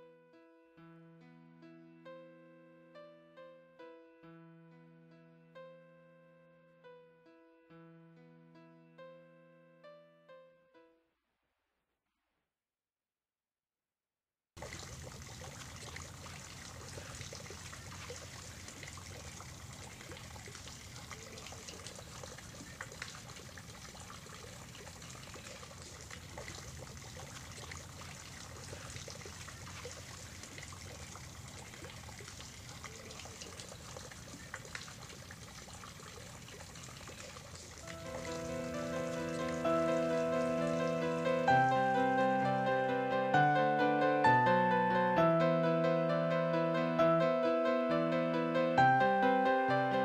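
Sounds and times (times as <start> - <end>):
music: 0.0 - 11.2, 37.8 - 50.0
running water rushing: 14.6 - 42.7.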